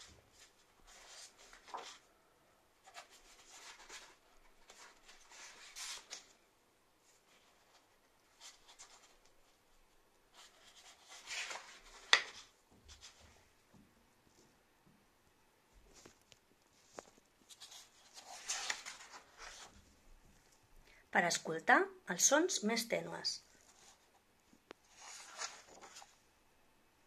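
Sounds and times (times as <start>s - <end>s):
book pages rustling: 0.0s - 2.1s, 2.8s - 6.4s, 7.0s - 9.6s, 10.3s - 13.5s, 15.8s - 20.6s, 23.5s - 26.2s.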